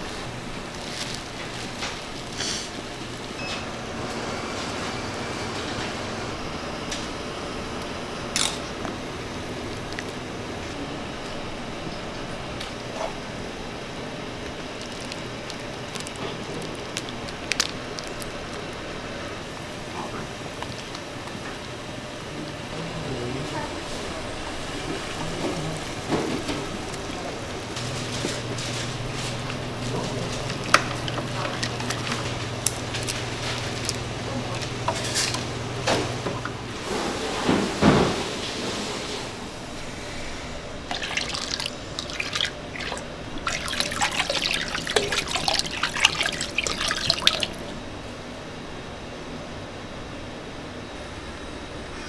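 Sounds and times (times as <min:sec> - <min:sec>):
sauce bubbling in a pan: 0:29.0 - 0:35.5, 0:40.9 - 0:47.8
steady low hum: 0:39.3 - 0:52.0.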